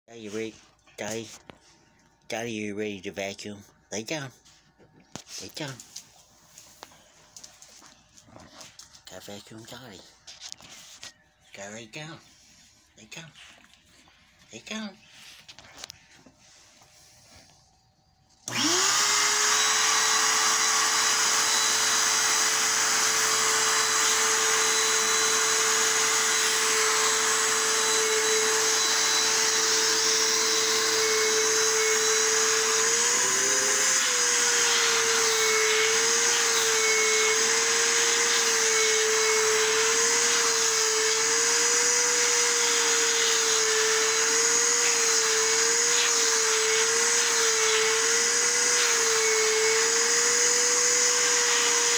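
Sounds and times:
vacuum cleaner running: 0:18.4 - 0:51.9.

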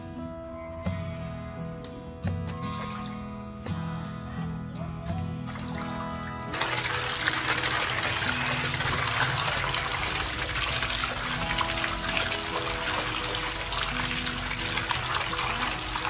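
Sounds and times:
background music: 0:00.0 - 0:16.0
tap water running and splashing: 0:05.5 - 0:16.0.

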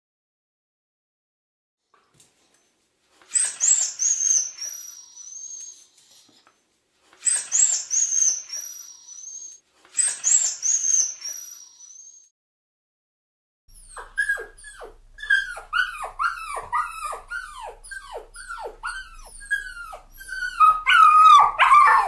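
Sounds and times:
dog whining: 0:03.3 - 0:06.4, 0:07.2 - 0:12.2, 0:13.7 - 0:22.0.

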